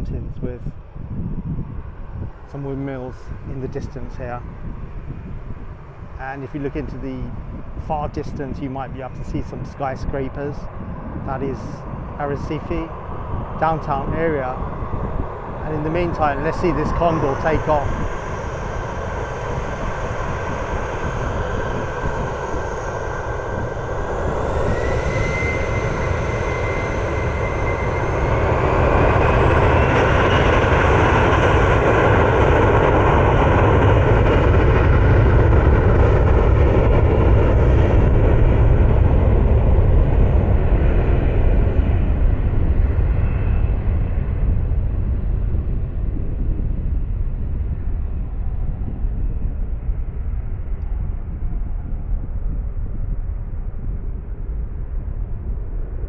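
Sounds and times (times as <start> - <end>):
rising engine whine: 0.0 - 56.0
jet engines spooling up: 6.4 - 43.7.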